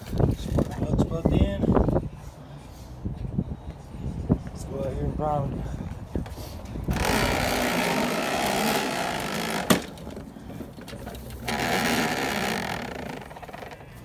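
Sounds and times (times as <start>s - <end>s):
push mower rolling on plastic wheels: 6.9s - 13.8s.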